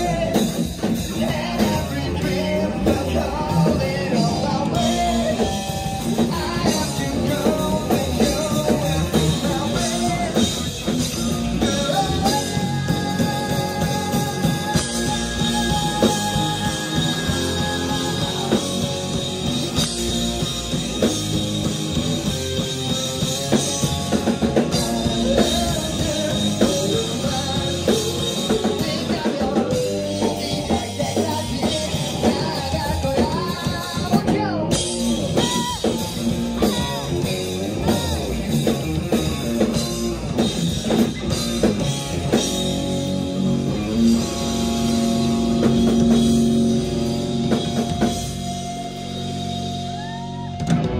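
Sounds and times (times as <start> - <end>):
person singing into microphone: 0.0 - 19.0, 24.6 - 38.6
drum kit: 0.0 - 50.9
electric guitars: 0.0 - 50.9.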